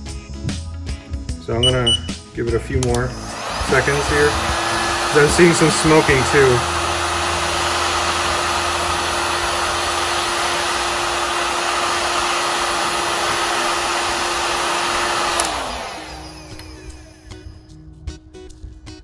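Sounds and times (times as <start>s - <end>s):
fan winding down: 1.6s - 17.8s
heat gun blowing: 2.8s - 17.6s.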